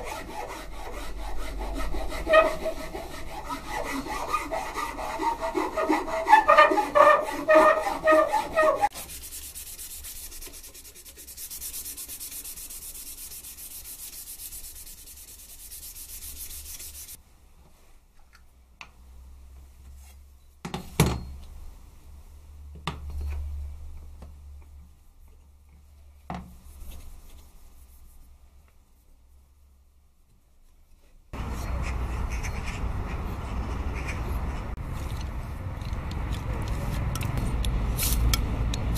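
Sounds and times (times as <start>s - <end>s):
sanding wood by hand: 0.0s - 17.2s.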